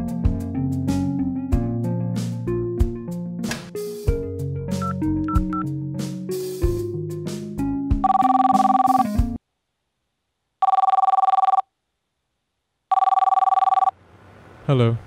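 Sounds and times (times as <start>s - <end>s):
piano playing: 0.0s - 9.4s
intercom two-tone ringing: 8.0s - 9.1s.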